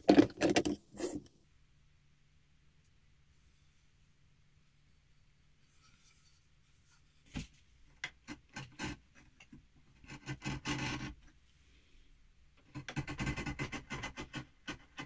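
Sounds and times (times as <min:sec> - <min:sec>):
chisel scraping wood: 0:00.0 - 0:01.3, 0:08.2 - 0:11.2, 0:12.7 - 0:15.0.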